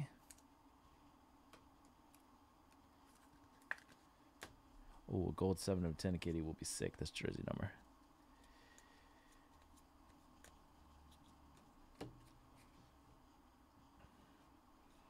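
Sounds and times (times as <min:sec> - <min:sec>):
cards being shuffled: 0:09.3 - 0:12.7.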